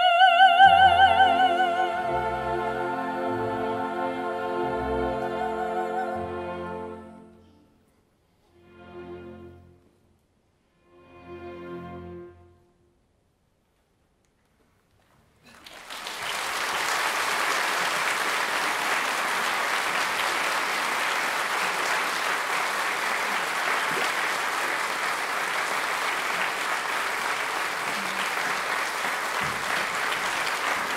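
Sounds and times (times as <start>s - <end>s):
audience applause: 15.4s - 30.9s.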